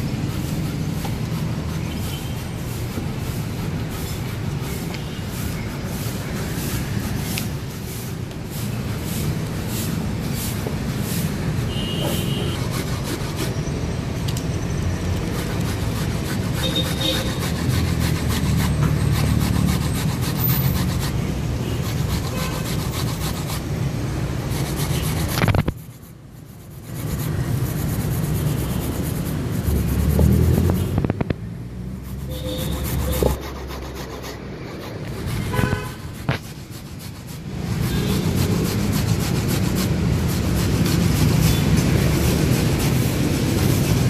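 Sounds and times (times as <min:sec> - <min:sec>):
knife scraping metal bowl: 0:15.3 - 0:23.6, 0:32.0 - 0:43.6.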